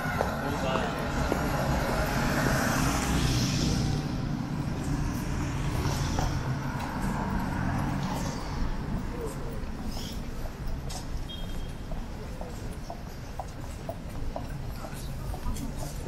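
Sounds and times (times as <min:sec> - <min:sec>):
cars driving past: 0:00.0 - 0:11.3.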